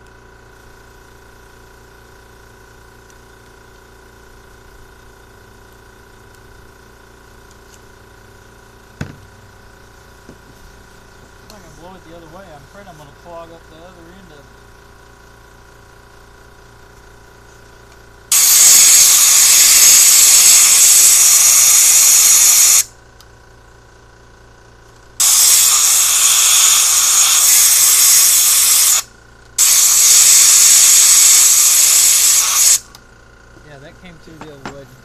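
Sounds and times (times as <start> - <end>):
compressed air hissing: 18.3 - 22.9, 25.2 - 32.9.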